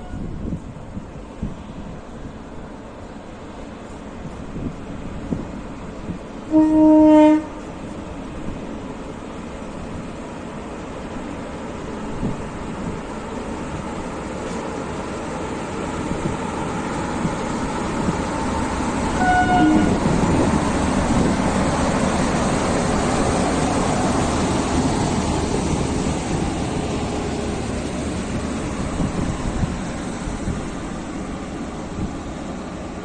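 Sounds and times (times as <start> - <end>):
train horn toot: 0.0 - 0.4, 6.5 - 7.7, 19.2 - 20.1
electric locomotive passing: 0.0 - 33.0.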